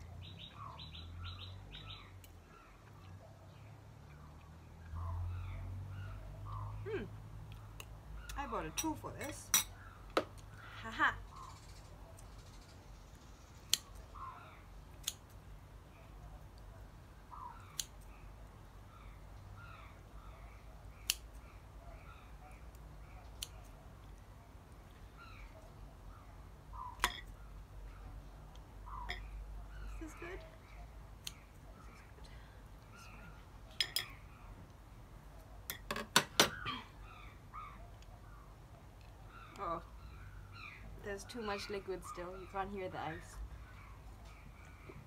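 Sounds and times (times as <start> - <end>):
spoon clinking against bowls: 27.0 - 27.3, 33.8 - 34.2.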